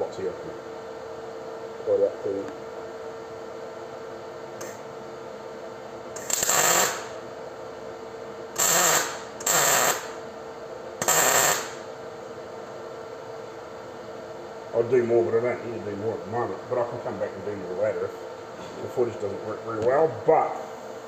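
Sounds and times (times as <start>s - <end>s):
welder arc crackling: 6.1s - 7.2s, 8.6s - 10.2s, 11.0s - 11.8s.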